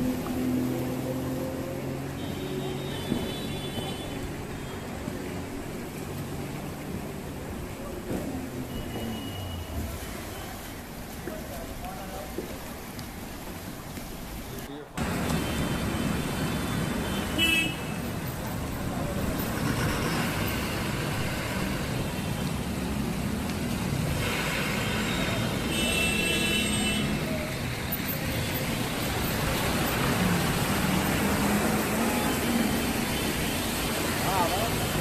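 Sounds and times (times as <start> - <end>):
traffic on a wet road: 0.0 - 35.0
vehicle horn: 16.6 - 18.0, 24.2 - 27.2.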